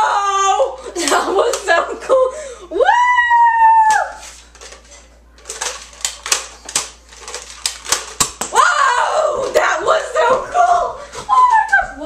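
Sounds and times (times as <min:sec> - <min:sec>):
toy blaster clicking and rattling: 0:05.4 - 0:08.4
child shouting: 0:08.5 - 0:11.8.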